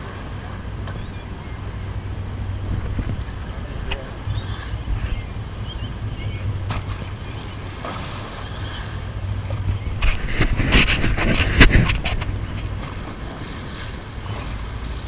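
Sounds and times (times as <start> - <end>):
boat engine droning: 0.0 - 15.0
rushing water: 0.0 - 15.0
wind on microphone: 0.0 - 15.0.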